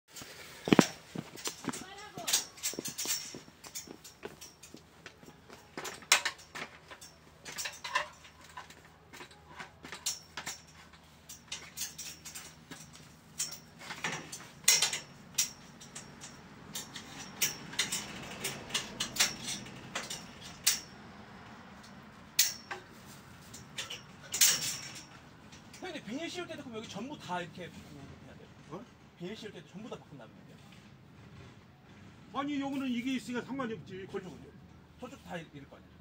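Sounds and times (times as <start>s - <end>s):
metallic clinks on steel pipes: 0.7s - 20.9s, 22.4s - 25.8s.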